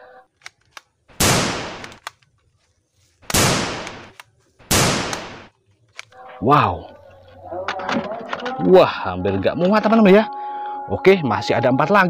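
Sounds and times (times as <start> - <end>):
toy gun mechanism clicks: 0.3 - 0.9, 1.8 - 2.3
toy gunshot sounds: 3.3 - 5.5.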